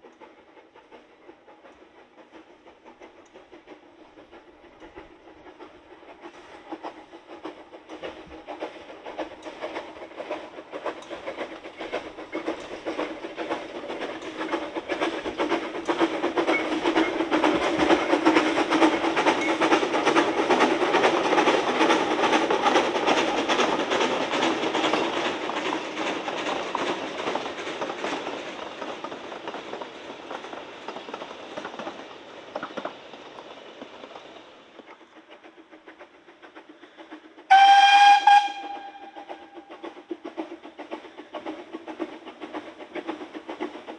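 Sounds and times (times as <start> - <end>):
steam train passing: 0.0 - 43.9
steam whistle blast: 37.5 - 39.5.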